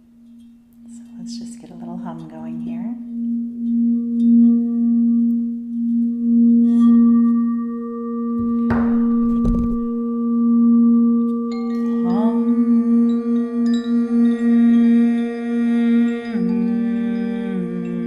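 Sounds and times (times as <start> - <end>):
crystal singing bowl tone: 0.3 - 18.0
person humming: 11.8 - 18.0.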